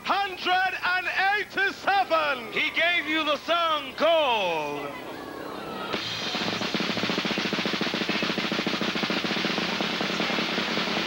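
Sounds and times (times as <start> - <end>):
fast drum roll: 6.0 - 11.0.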